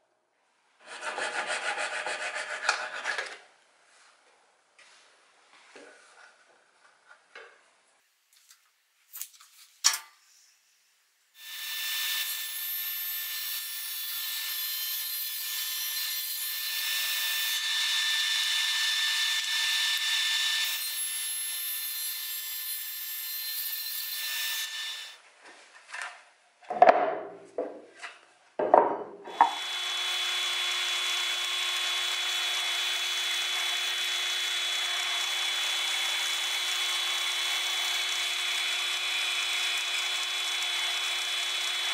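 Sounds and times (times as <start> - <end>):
table saw cutting plywood: 0.8 - 3.3, 11.4 - 25.2, 29.3 - 41.9
drill press boring into plywood: 29.3 - 41.9.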